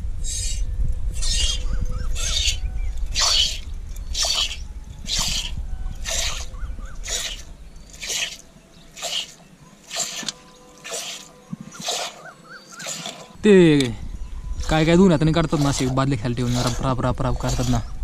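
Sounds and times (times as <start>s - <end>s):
low rumble: 0.0s - 7.9s
milk squirting into metal pot: 9.0s - 12.2s, 15.4s - 17.8s.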